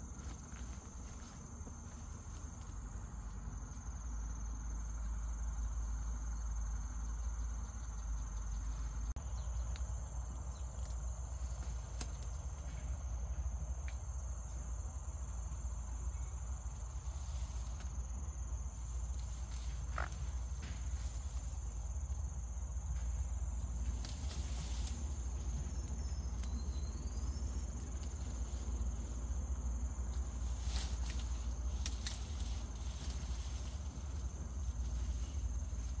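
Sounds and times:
insects droning: 0.0s - 36.0s.

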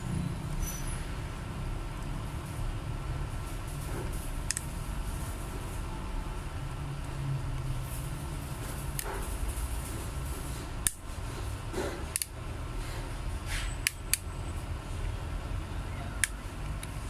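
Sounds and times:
low fan hum: 0.0s - 17.0s
plastic clips snapping: 12.1s - 12.4s.

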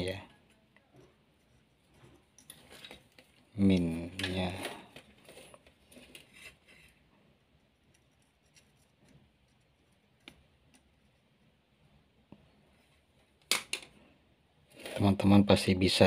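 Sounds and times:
faint clicks and taps of soldering: 7.6s - 11.6s.

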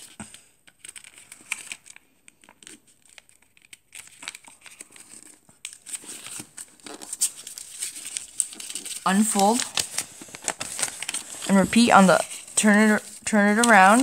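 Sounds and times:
paper crinkling and rustling: 0.0s - 14.0s.

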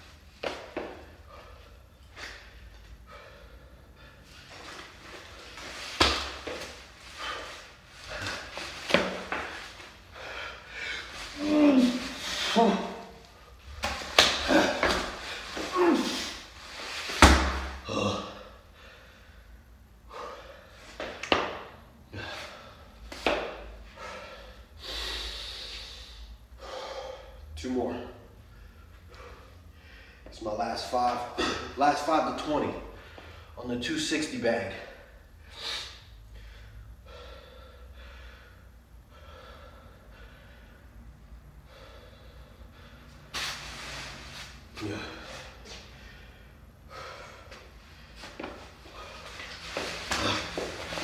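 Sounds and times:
man breathing hard: 0.8s - 16.8s, 17.5s - 21.2s, 22.0s - 27.6s, 28.3s - 30.3s, 32.9s - 33.6s, 34.8s - 43.3s, 44.5s - 51.0s
sandbag thud: 5.9s - 6.6s, 17.1s - 17.8s
man exhaling forcefully: 49.9s - 51.0s.

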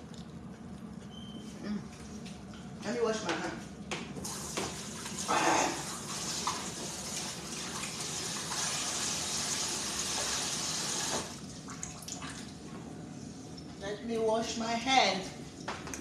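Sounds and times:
tap water running: 4.2s - 12.6s.

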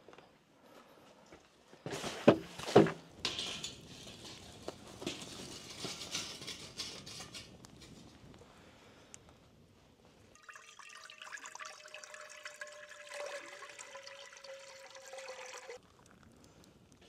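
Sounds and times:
rustling: 1.8s - 8.7s
kitchen clattering: 2.6s - 8.2s.

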